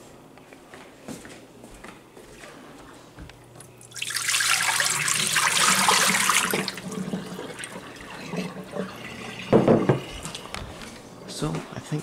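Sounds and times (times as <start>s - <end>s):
water pouring into a sink: 3.8s - 10.4s.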